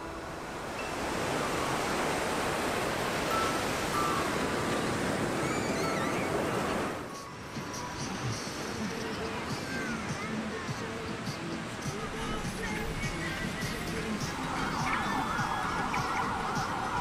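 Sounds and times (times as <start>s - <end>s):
waves washing onto a beach: 0.0s - 17.0s
faint high chirps: 3.3s - 8.0s.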